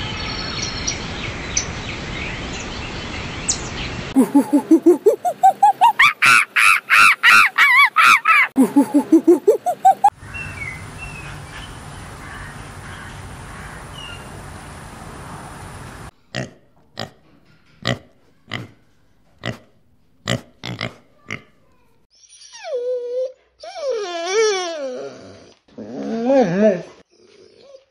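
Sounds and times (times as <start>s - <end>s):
monkey calling with wails: 4.2s - 10.2s
outdoor hiss: 10.1s - 16.2s
piglets grunting: 20.3s - 21.6s.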